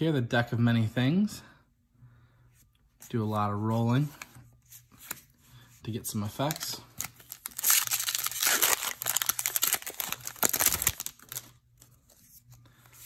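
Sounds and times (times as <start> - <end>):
foil wrapper crinkling: 6.4 - 12.0.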